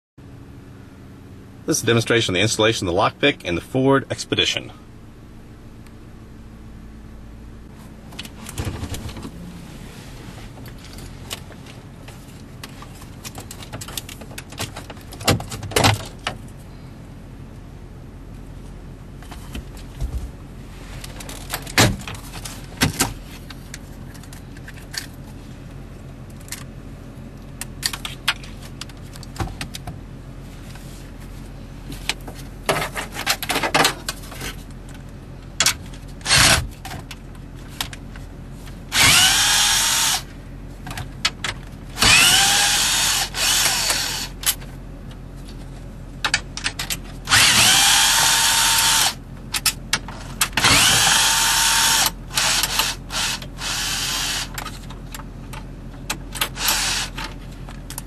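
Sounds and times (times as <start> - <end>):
cordless drill whining: 38.9 - 40.3, 42.0 - 44.4, 47.3 - 49.2, 50.6 - 54.5, 56.5 - 57.2.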